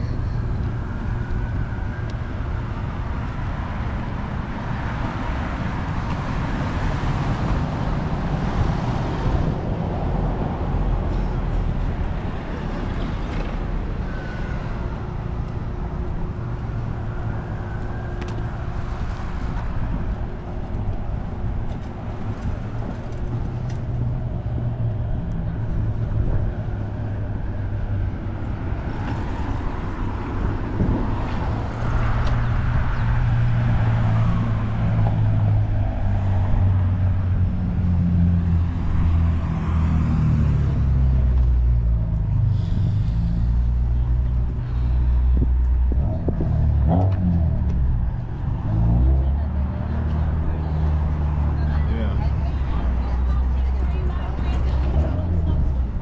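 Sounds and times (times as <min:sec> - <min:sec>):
cars passing: 0:00.0 - 0:56.0
heavy engine approaching: 0:36.5 - 0:56.0.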